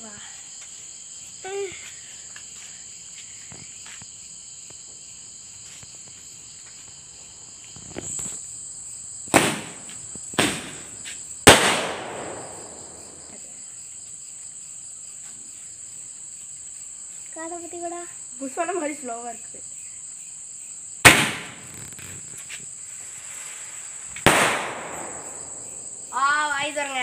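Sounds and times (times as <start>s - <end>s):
crickets chirring: 0.0s - 27.0s
firework bangs: 9.2s - 13.4s, 21.0s - 22.4s, 23.0s - 26.2s
firework launch whoosh: 9.3s - 13.3s, 21.0s - 22.4s, 23.1s - 25.9s.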